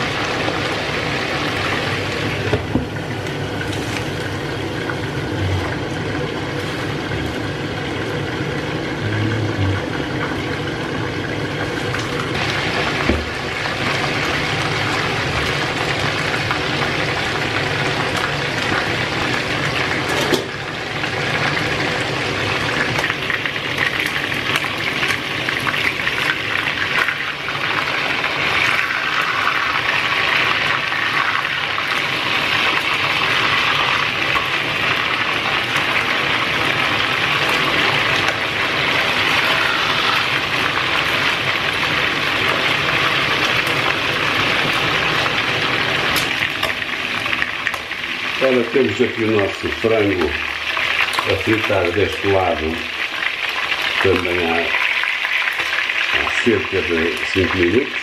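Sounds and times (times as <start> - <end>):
chicken frying in oil: 0.0 - 58.0
water boiling in a pot: 0.0 - 58.0
cabbage being stirred: 23.6 - 53.1.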